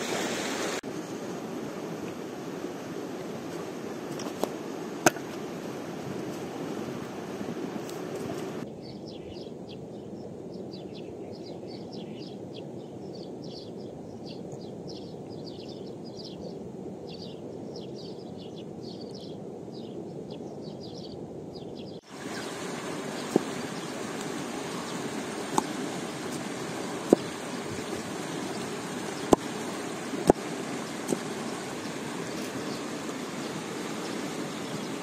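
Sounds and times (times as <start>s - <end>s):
stream flowing: 0.0s - 8.7s, 22.0s - 35.0s
small birds chirping: 8.2s - 35.0s.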